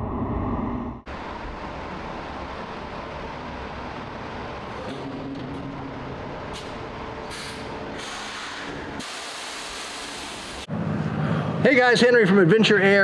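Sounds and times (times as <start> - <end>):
air brake hisses: 7.3 - 10.6.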